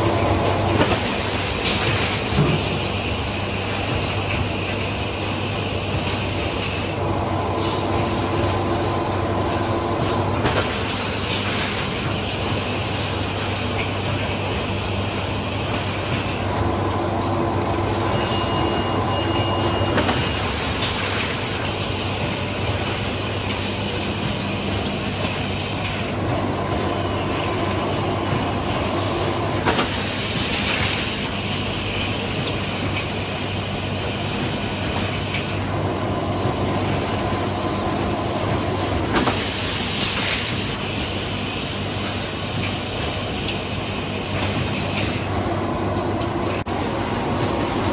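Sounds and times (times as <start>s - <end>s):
machine hum and hiss: 0.0s - 47.9s.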